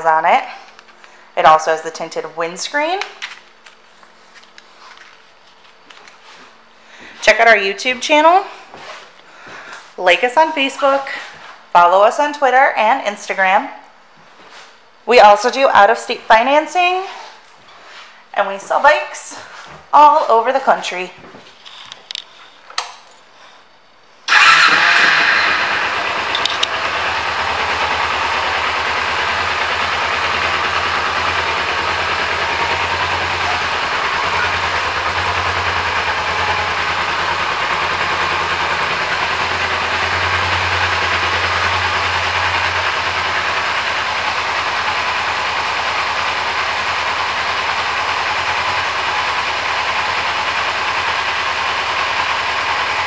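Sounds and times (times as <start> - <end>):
motorcycle engine starting and idling: 24.3 - 53.0.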